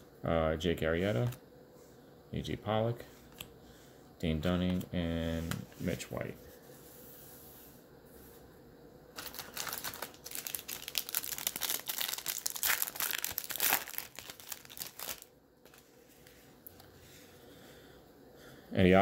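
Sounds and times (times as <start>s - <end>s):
foil wrapper crinkling: 9.1s - 15.9s.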